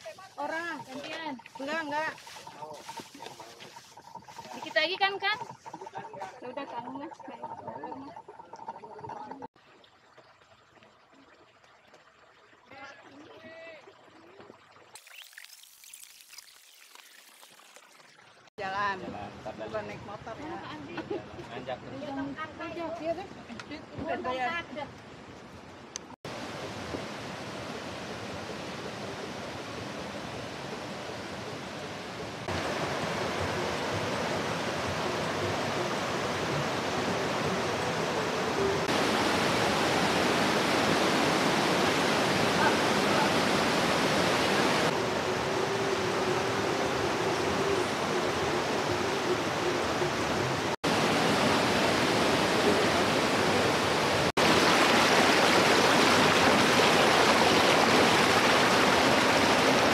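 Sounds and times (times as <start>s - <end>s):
waterfall rushing: 26.3s - 59.9s.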